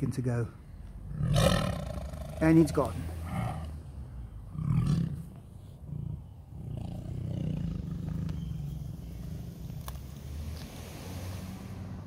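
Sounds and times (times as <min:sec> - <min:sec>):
tiger growling: 0:01.0 - 0:10.2.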